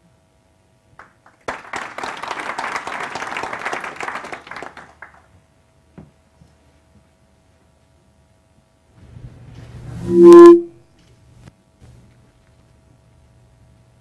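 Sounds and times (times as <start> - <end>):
small audience applauding: 0.9 - 5.4.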